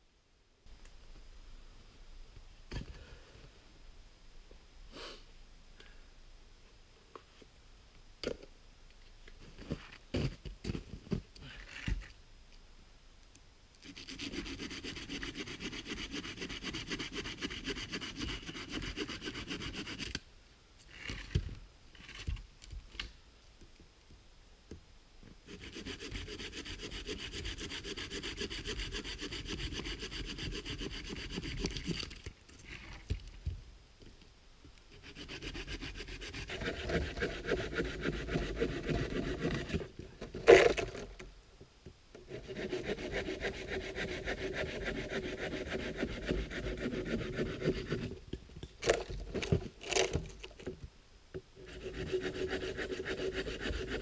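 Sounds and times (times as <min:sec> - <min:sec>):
hand saw cutting log: 0:13.9 - 0:20.2, 0:25.5 - 0:32.0, 0:34.9 - 0:41.0, 0:42.3 - 0:48.2, 0:51.6 - 0:54.0.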